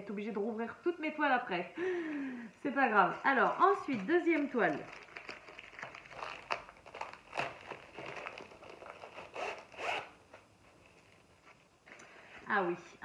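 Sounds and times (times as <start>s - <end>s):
plastic ripping: 3.0s - 11.3s
plastic packaging crinkling: 3.0s - 11.8s.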